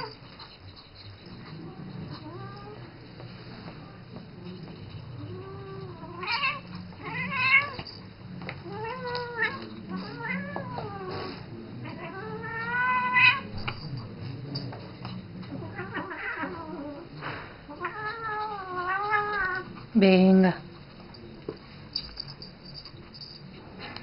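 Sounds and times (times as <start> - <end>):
cat meowing: 5.2 - 7.8, 8.6 - 13.5, 15.5 - 17.1, 17.7 - 19.7.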